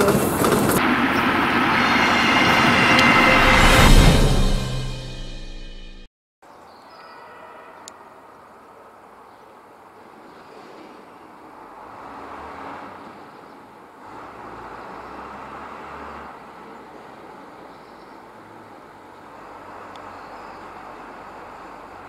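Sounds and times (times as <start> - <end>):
diesel locomotive engine running: 0.0 - 6.0.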